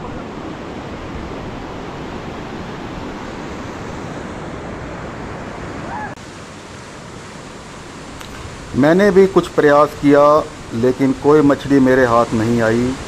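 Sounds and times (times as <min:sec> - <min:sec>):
stream rushing over boulders: 0:00.0 - 0:13.0.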